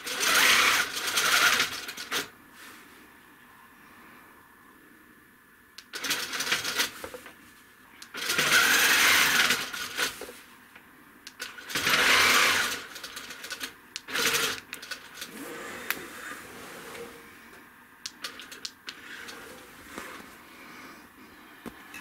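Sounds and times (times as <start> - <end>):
quilting machine stitching: 5.9 - 6.9, 8.2 - 10.1, 11.4 - 17.2
machine clicks: 18.0 - 19.4.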